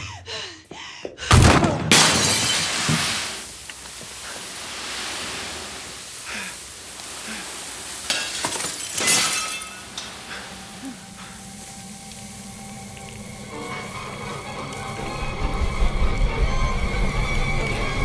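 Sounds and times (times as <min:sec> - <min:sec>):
broken glass clinking: 0:01.9 - 0:03.4, 0:08.0 - 0:10.2
sand pouring onto floor: 0:02.6 - 0:18.0
faint steady tones: 0:09.4 - 0:18.0
low hum: 0:09.8 - 0:18.0.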